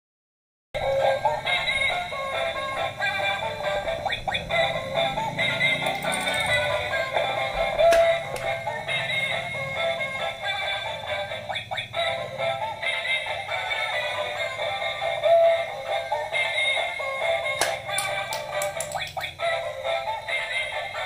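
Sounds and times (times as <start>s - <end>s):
toy electronic tune with singing: 0.8s - 21.0s
plastic eggs clicking on tile: 17.6s - 19.4s.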